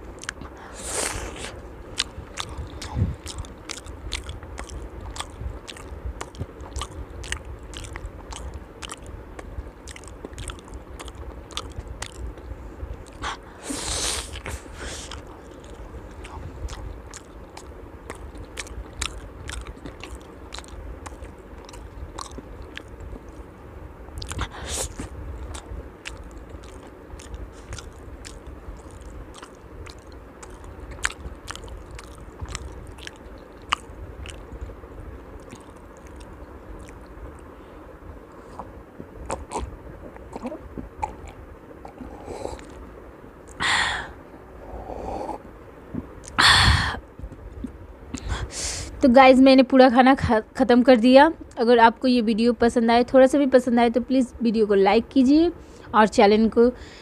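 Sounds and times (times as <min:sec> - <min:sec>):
close chewing with mouth clicks: 0:00.0 - 0:23.6, 0:24.2 - 0:37.6, 0:38.2 - 0:43.6, 0:45.2 - 0:46.4
sipping and swallowing: 0:00.2 - 0:23.5, 0:24.2 - 0:34.8, 0:38.3 - 0:43.6.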